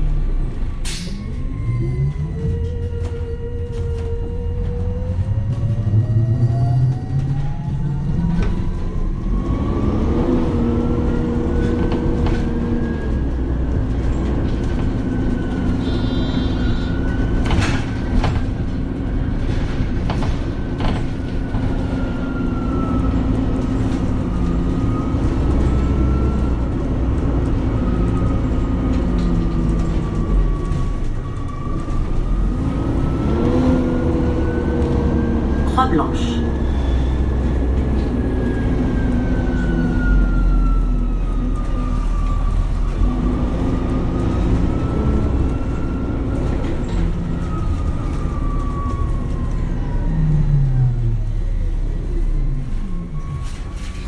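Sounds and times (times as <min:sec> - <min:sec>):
bus engine drone: 0:00.0 - 0:54.0.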